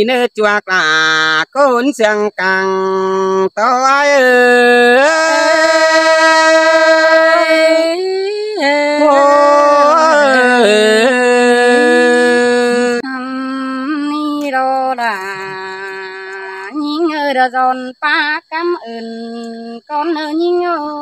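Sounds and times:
person singing unaccompanied: 0.0 - 21.0.

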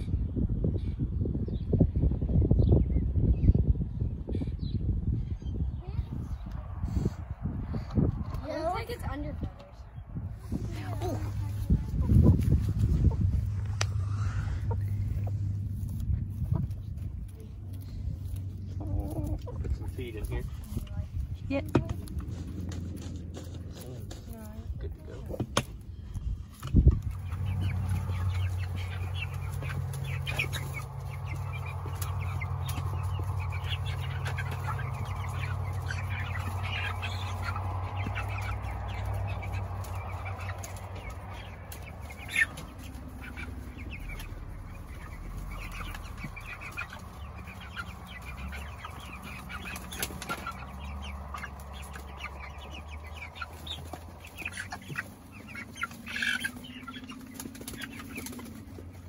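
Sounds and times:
chicks peeping: 0.0 - 59.0
steady low hum: 10.0 - 23.7.

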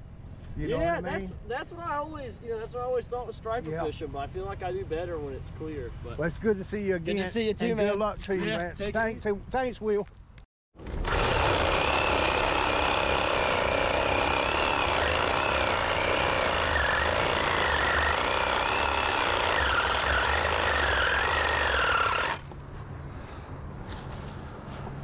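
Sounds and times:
power cutting tool whining: 10.8 - 22.5.

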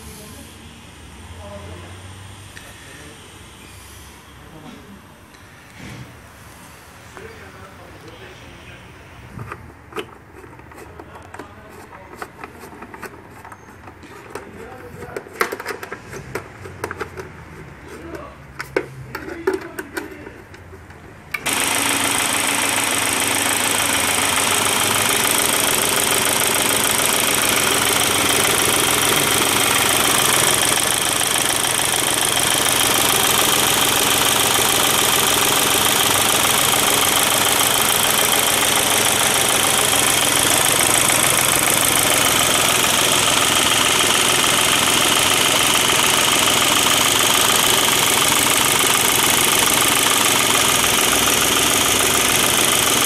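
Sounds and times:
diesel engine running: 21.3 - 53.0.

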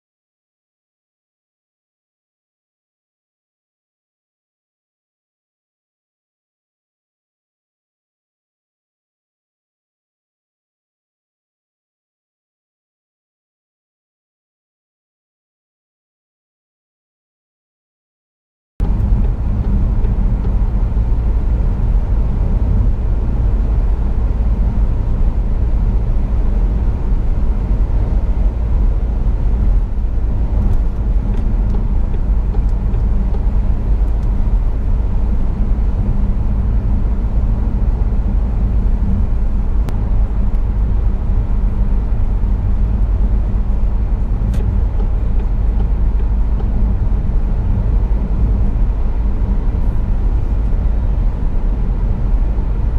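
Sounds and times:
car cabin road rumble: 18.8 - 52.9.

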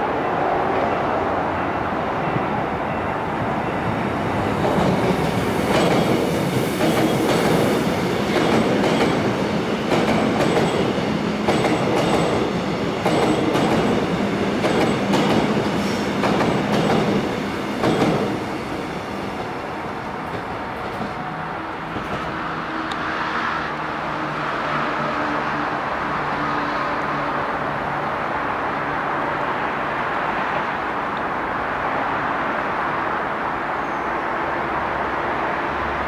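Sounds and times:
train wheels clacking on rails: 4.5 - 19.6.

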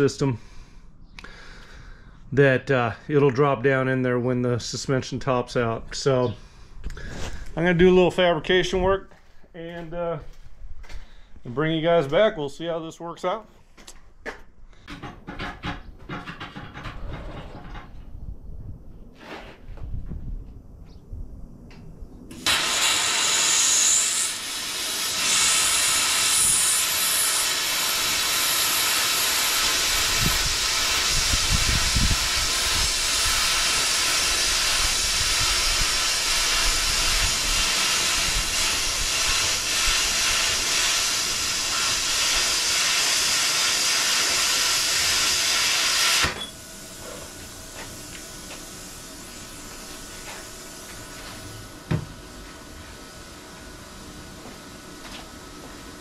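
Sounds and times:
machine fan running: 22.2 - 56.0
plasma cutter hissing: 22.3 - 51.8.

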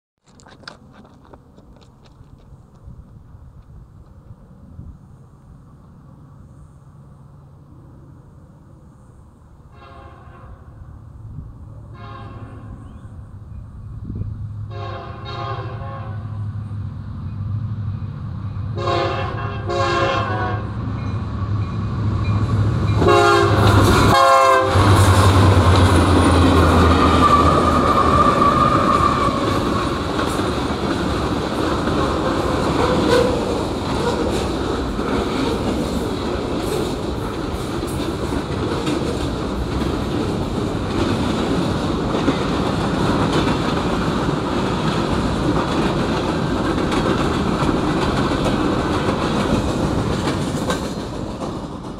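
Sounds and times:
diesel engines rumbling: 0.3 - 51.9
train air horn blasts: 9.7 - 10.9, 11.8 - 13.0, 14.7 - 16.5, 18.8 - 20.8, 23.0 - 25.7
train wheels clattering on rails: 20.9 - 51.9.

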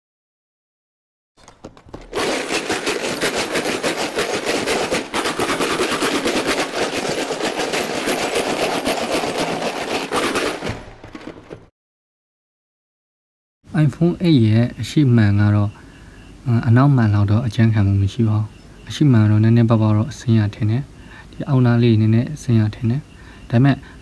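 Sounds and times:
metal screws rattling in plastic tub: 1.4 - 11.6.

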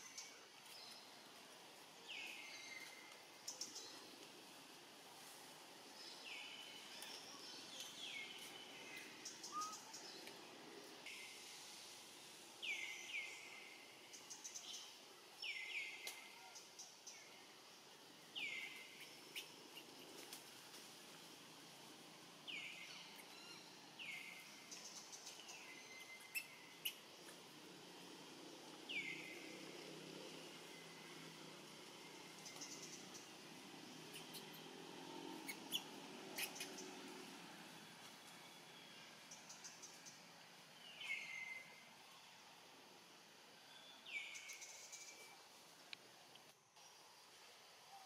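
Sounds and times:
faint forest background: 0.0 - 48.0
bird chirps: 6.2 - 10.1, 22.5 - 27.4, 35.4 - 37.0.

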